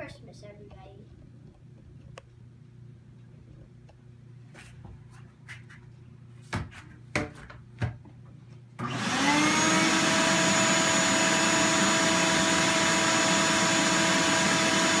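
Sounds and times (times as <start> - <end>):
vacuum motor whine: 8.8 - 15.0.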